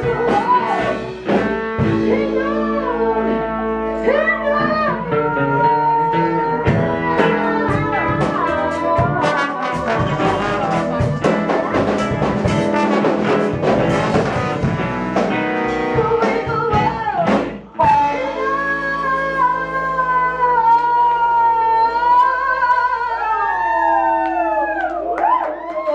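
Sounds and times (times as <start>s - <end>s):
live band playing dance music: 0.0s - 21.2s.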